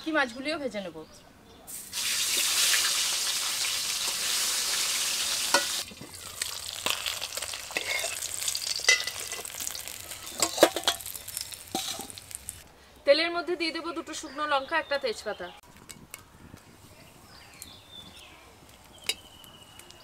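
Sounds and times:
fish frying in oil: 0:01.8 - 0:12.6.

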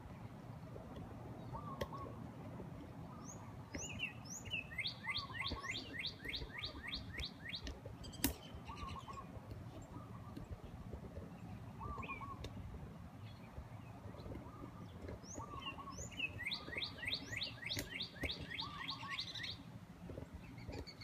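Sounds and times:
birds chirping: 0:00.0 - 0:21.0
lower bird calls: 0:01.4 - 0:02.2, 0:03.0 - 0:10.8, 0:11.4 - 0:19.7
sharp click: 0:07.1 - 0:08.5.

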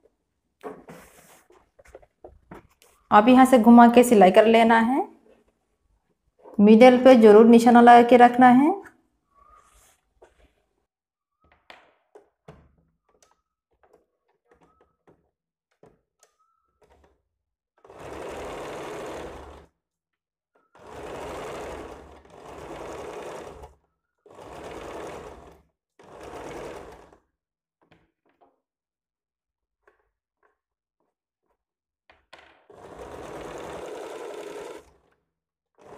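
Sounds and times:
sewing machine stitching: 0:17.8 - 0:19.8, 0:20.6 - 0:27.3, 0:32.5 - 0:35.9.

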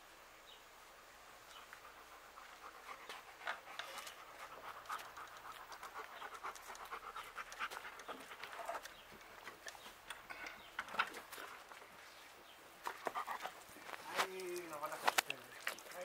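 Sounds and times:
dog panting rapidly: 0:01.7 - 0:09.0, 0:13.0 - 0:13.7.

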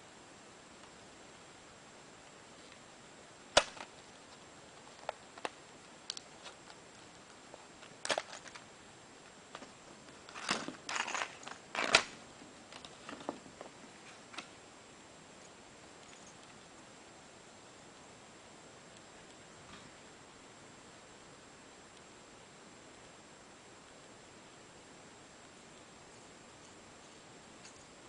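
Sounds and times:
plastic snapping: 0:03.6 - 0:03.9.

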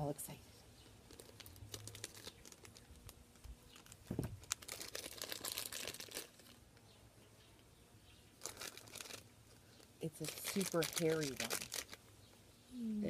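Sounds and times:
foil packet crinkling: 0:01.0 - 0:06.6, 0:08.4 - 0:12.1
scissors cutting foil: 0:10.2 - 0:11.9.

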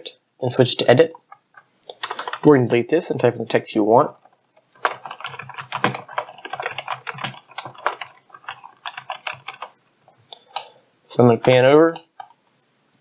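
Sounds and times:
computer keyboard typing: 0:01.2 - 0:02.7, 0:04.1 - 0:10.7, 0:11.4 - 0:12.4.

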